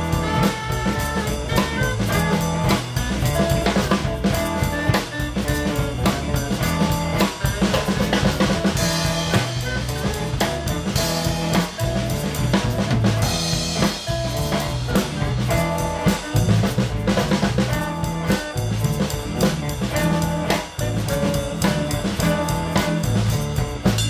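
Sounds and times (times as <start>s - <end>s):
drum beat: 0.0s - 24.0s
electric guitar: 0.0s - 24.0s
organ: 0.0s - 24.0s.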